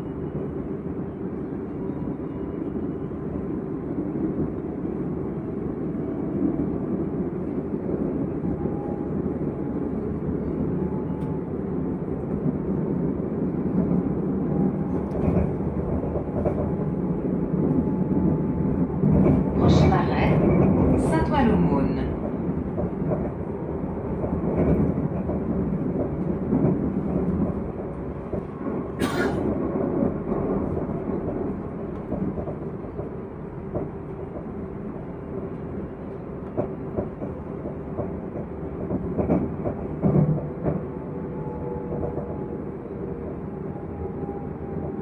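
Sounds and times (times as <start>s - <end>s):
train rumbling from inside: 0.0s - 45.0s
clacks and rattles: 36.4s - 40.9s.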